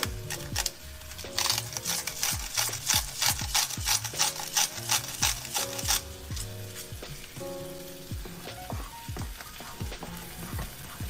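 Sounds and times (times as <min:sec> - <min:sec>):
salt grinder crunching: 0:00.0 - 0:07.4
lo-fi hip-hop music: 0:00.0 - 0:11.0.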